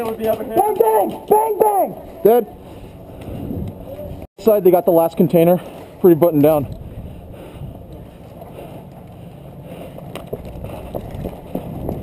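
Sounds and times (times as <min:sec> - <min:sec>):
wind rumble on camera: 0:03.0 - 0:04.3, 0:06.6 - 0:08.3, 0:10.1 - 0:12.0
footsteps on packed dirt: 0:07.6 - 0:12.0.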